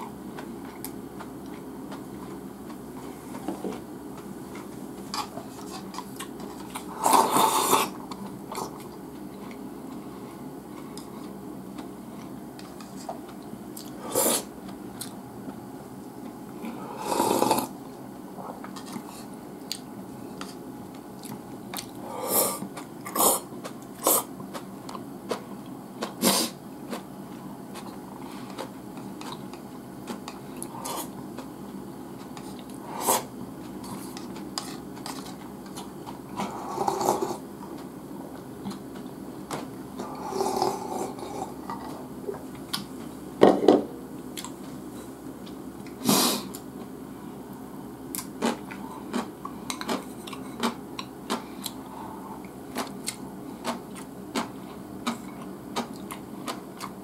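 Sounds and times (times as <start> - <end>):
chewing and mouth sounds: 48.1 - 51.8, 52.4 - 57.0.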